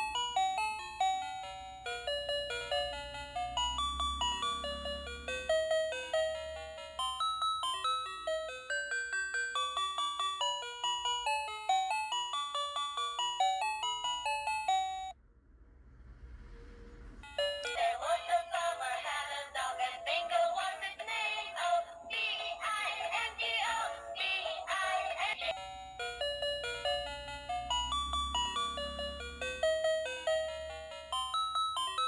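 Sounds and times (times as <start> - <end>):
chiming beep melody: 25.5 - 32.0.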